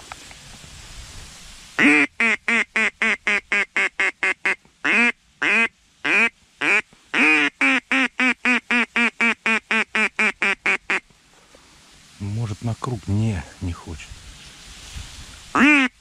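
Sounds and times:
duck call quacking: 1.8 - 11.0, 15.6 - 16.0.

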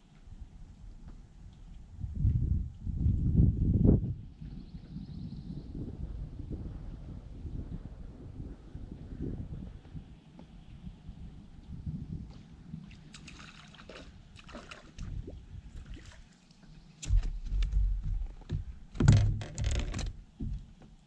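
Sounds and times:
light water sounds: 12.2 - 18.4
knocks and rustles in a boat: 13.9 - 21.0
heavy low rumble: 17.1 - 20.2.

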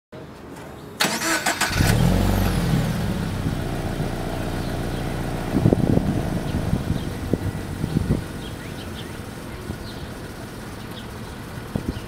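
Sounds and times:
starter motor cranking: 1.0 - 2.2
car engine idling: 1.1 - 12.0.

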